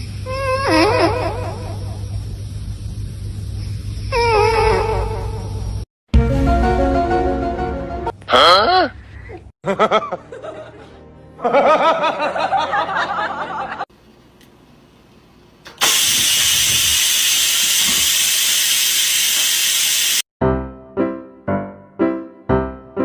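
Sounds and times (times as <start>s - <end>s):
rice cooker steam hissing: 15.7s - 20.2s.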